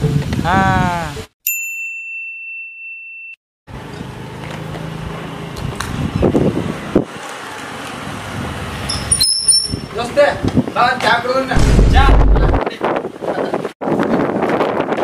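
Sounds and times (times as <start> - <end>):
high-pitched electronic beep: 8.9 - 9.9
low hum: 11.6 - 12.6
sharp knocks: 11.6 - 12.6.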